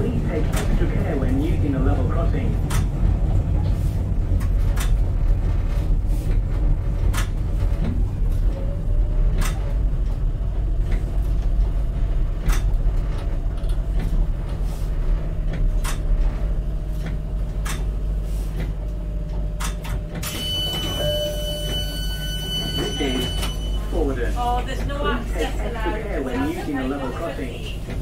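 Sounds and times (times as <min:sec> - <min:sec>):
train rumble: 0:00.0 - 0:28.0.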